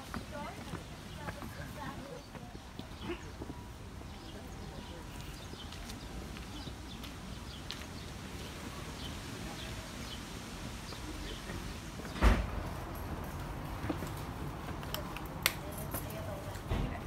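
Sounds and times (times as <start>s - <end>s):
outdoor background noise: 0.0s - 17.0s
loud thump: 12.2s - 12.7s.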